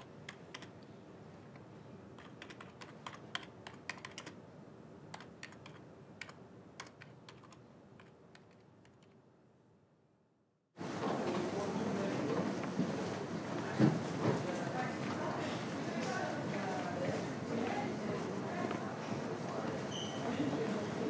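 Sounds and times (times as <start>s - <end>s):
faint room hum: 0.0s - 21.0s
keyboard key clicks: 2.2s - 4.4s, 5.1s - 9.2s.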